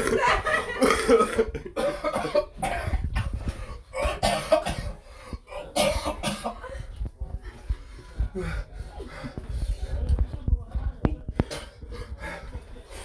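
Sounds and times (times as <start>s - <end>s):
man coughing into toilet bowl: 0.8s - 6.6s.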